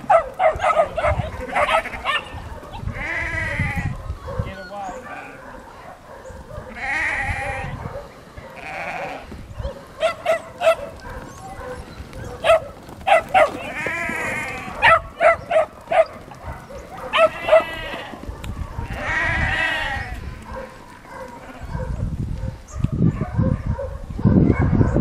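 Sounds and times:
puppies yapping: 0.0 - 25.0
sheep bleating: 1.0 - 3.9, 4.8 - 5.4, 6.7 - 7.8, 8.5 - 9.4, 13.4 - 15.1, 17.1 - 20.4.

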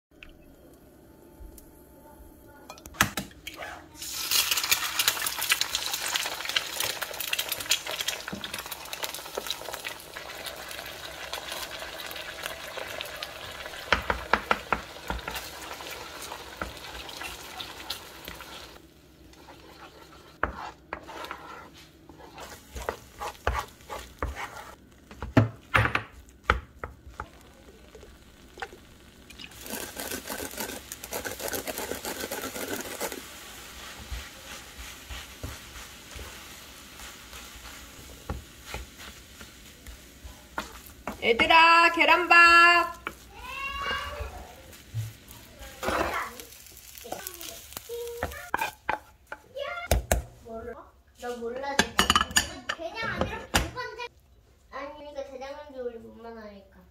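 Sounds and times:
rice sizzling while stir-fried: 3.9 - 53.1
egg sizzling in frying pan: 4.0 - 50.4
knocks and scrapes: 19.4 - 26.2.

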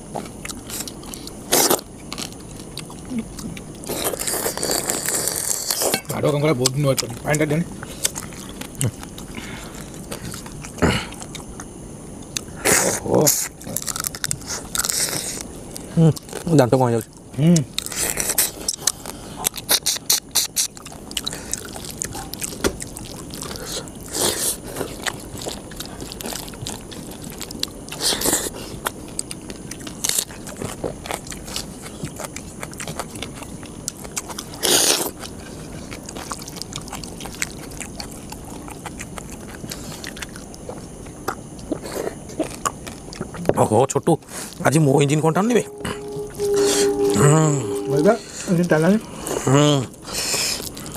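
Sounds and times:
people chewing: 0.0 - 47.1, 47.7 - 50.9
fingers scraping steel plates: 45.6 - 48.4.

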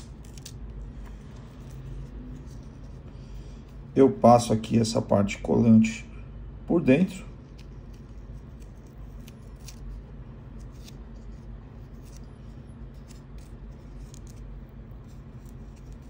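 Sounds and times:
velcro strap clicks and rubbing: 0.0 - 0.6, 7.5 - 12.3, 12.9 - 16.0
steady low hum: 0.0 - 16.0.

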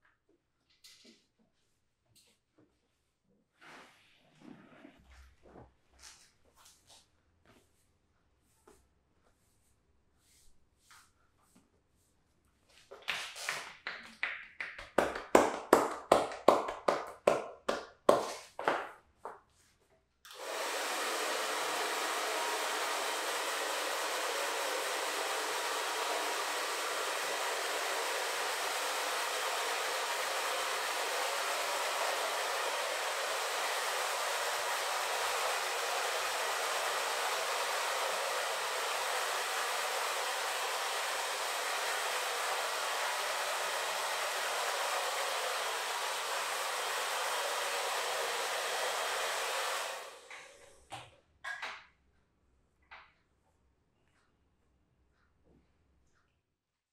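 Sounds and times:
hair dryer running: 15.0 - 17.4, 20.3 - 50.8.

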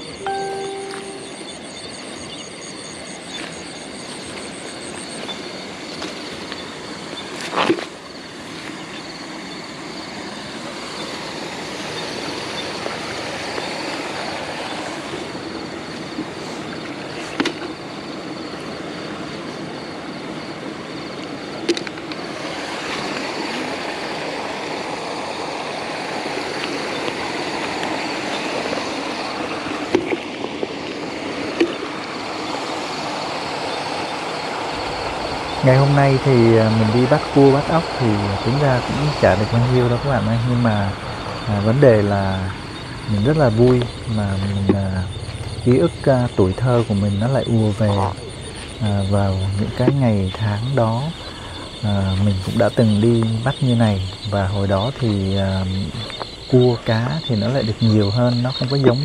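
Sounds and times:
steady rushing noise: 32.9 - 54.0.

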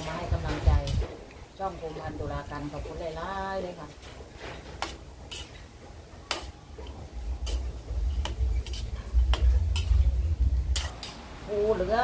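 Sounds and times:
frying in hot oil: 0.0 - 12.0
metal spatula scraping a wok: 3.7 - 11.4
low rumble: 7.1 - 12.0.

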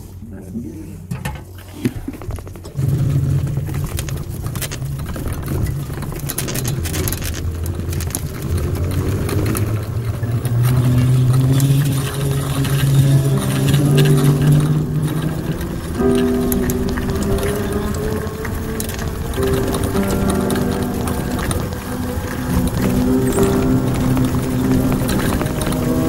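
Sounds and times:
frame and windshield rattling: 1.2 - 26.0.

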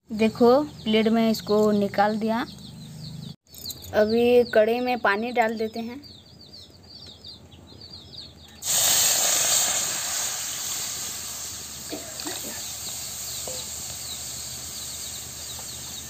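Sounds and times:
hiss of steam: 8.6 - 16.0.

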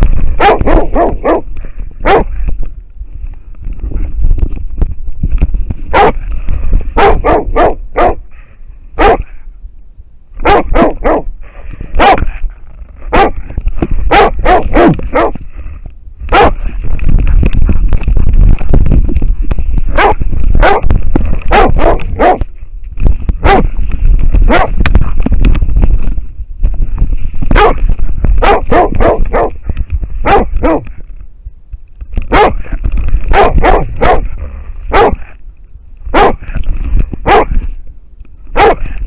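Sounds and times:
low rumble of camera movement: 0.0 - 39.0
dog barking: 0.4 - 1.4, 2.0 - 2.3, 5.9 - 6.2, 7.0 - 8.2, 9.0 - 9.4, 10.4 - 11.3, 12.0 - 12.3, 13.1 - 13.4, 14.1 - 15.4, 16.3 - 16.6, 19.9 - 20.8, 21.5 - 22.4, 23.4 - 23.7, 24.5 - 24.8, 27.6 - 27.8, 28.4 - 29.6, 30.2 - 30.9, 32.3 - 32.6, 33.3 - 34.3, 34.9 - 35.3, 36.1 - 36.4, 37.2 - 37.6, 38.5 - 38.9.

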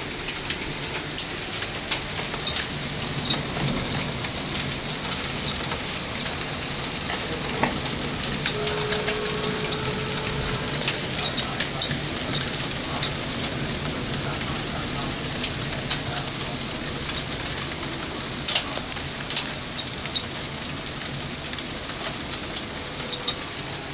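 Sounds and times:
hailstones ticking on ground: 0.0 - 23.9
heavy rain hiss: 0.0 - 23.9.

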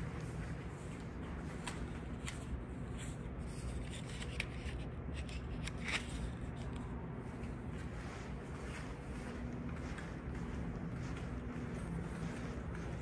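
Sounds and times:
footsteps on carpet: 0.0 - 3.2, 7.3 - 13.0
steady low hum: 0.0 - 13.0.

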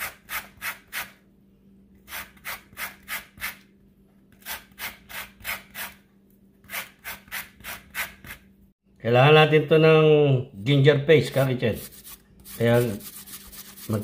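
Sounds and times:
grater scraping peel: 4.3 - 6.0, 6.6 - 8.4.

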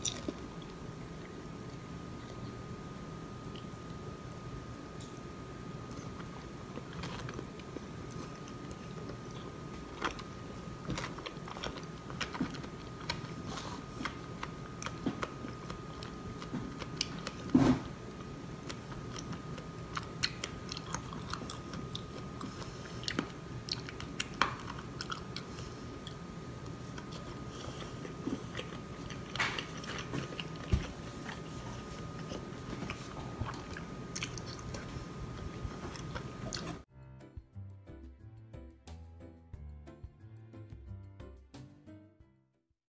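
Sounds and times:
person chewing waffle: 0.0 - 2.6, 5.8 - 36.9
faint steady hum: 0.0 - 37.2.

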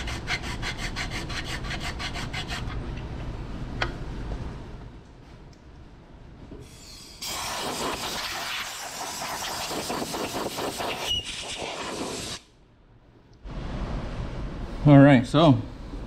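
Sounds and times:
compressed-air blow gun hissing: 7.1 - 12.4.

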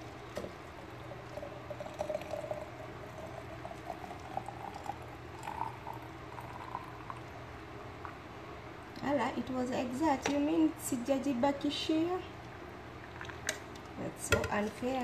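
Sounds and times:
coffee pouring into vessel: 0.0 - 8.2.

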